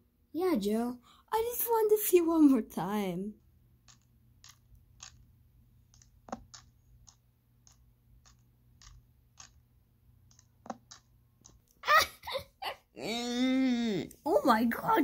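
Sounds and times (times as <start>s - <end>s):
plastic toys clicking together: 3.8s - 5.2s, 5.9s - 9.6s, 10.2s - 11.8s.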